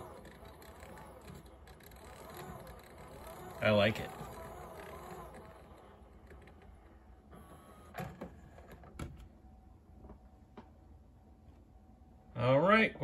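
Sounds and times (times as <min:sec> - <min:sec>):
jog dial mechanical clicks: 0:00.0 - 0:08.8.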